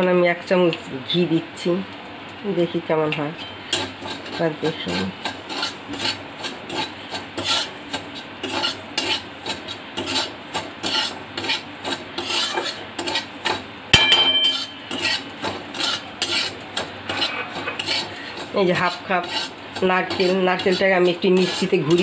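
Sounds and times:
metal spatula scraping a pan: 3.4s - 22.0s
sharp metallic clank: 13.9s - 15.0s.

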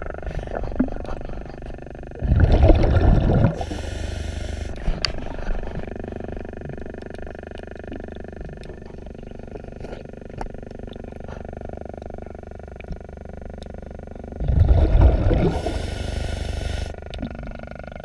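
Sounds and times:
low underwater rumble: 0.0s - 18.0s
churning rush of bubbles: 2.2s - 4.0s, 14.4s - 17.6s.

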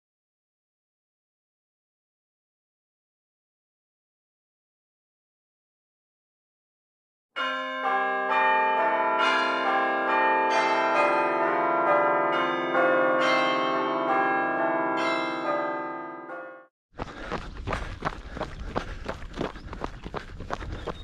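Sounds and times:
bells ringing: 7.4s - 16.7s.

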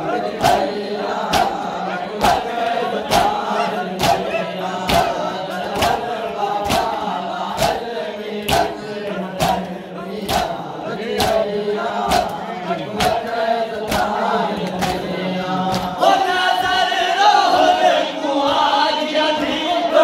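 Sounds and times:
men chanting in unison: 0.0s - 20.0s
chest-beating claps: 0.4s - 16.0s.

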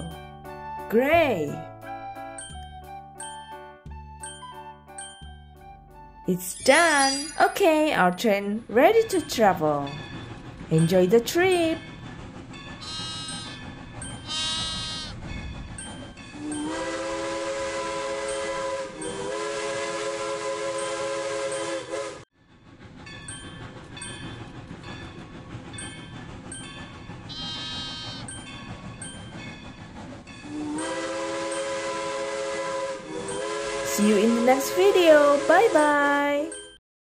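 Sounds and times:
train wheels clickety-clack: 7.8s - 20.0s, 20.7s - 36.1s
steam whistle: 16.4s - 22.3s, 30.5s - 35.8s.

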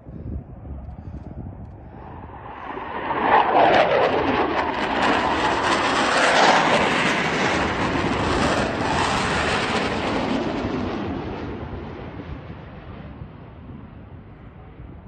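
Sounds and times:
jet roar passing low: 0.0s - 15.0s.

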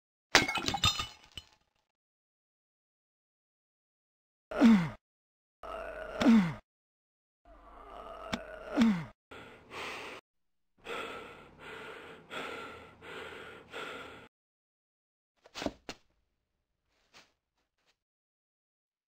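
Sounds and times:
person gasping: 8.4s - 10.2s, 10.8s - 14.3s
quick heavy breathing: 9.3s - 10.2s, 10.8s - 14.3s.

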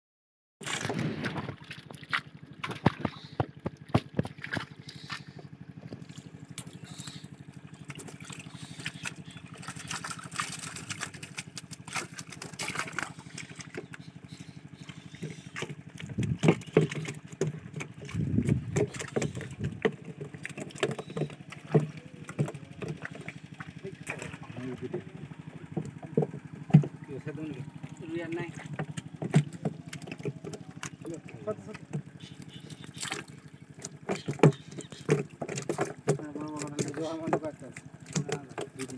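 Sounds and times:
fish flapping splashes: 0.6s - 38.9s
small engine running: 0.6s - 38.9s
water splashing from fishing net: 0.6s - 38.9s
voices: 18.4s - 38.9s.

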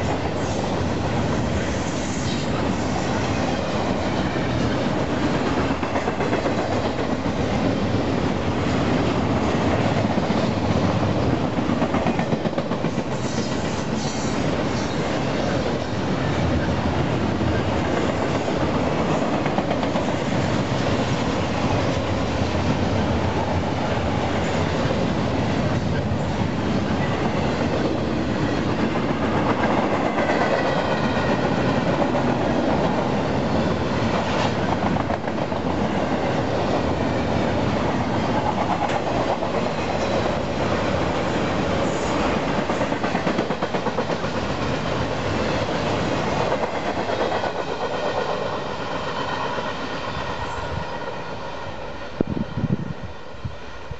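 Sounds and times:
train wheels rumbling on rail: 0.0s - 53.9s.

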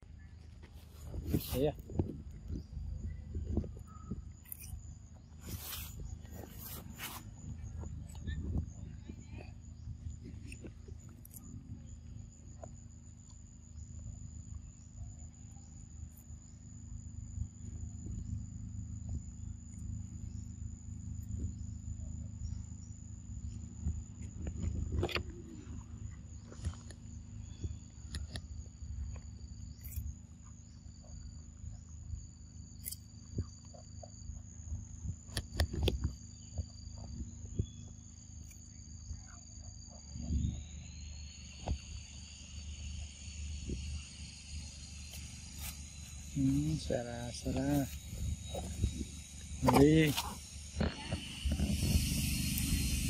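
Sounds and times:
insects droning: 0.0s - 53.0s
low rumble: 36.1s - 53.0s.

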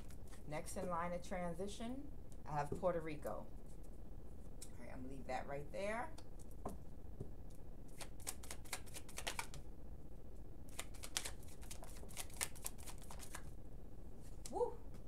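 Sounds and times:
cards being shuffled: 7.9s - 9.6s, 10.7s - 13.5s.

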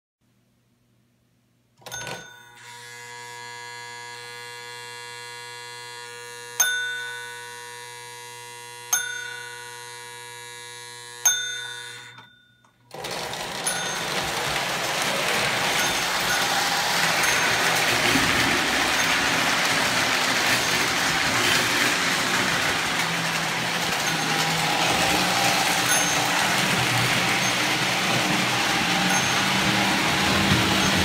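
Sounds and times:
toy train running on track: 1.8s - 12.3s, 12.9s - 31.0s
toy train bell ringing: 6.6s - 7.7s, 8.9s - 10.2s, 11.2s - 31.0s.

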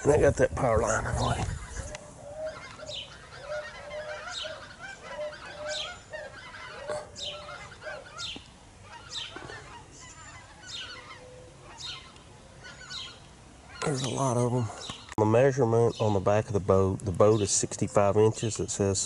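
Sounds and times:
flock of geese honking: 0.0s - 14.7s.

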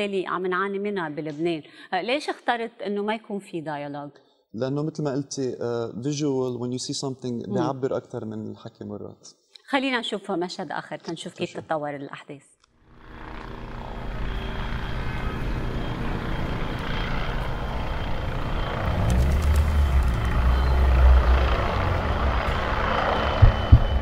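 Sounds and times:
helicopter flying overhead: 12.8s - 24.0s.

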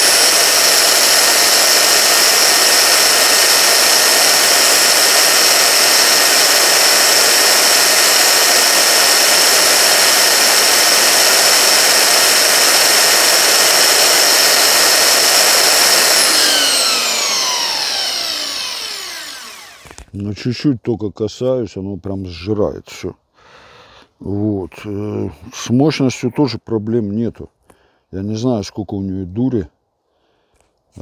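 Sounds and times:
belt sander whining: 0.0s - 20.3s.

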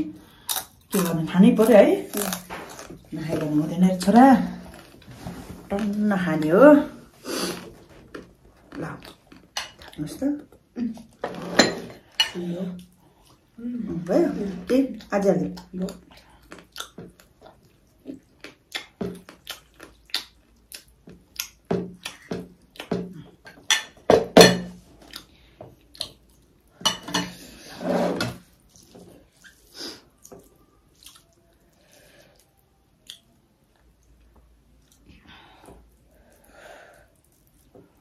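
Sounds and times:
dishes and cutlery clinking: 11.2s - 12.5s, 23.5s - 24.8s, 26.8s - 27.4s.

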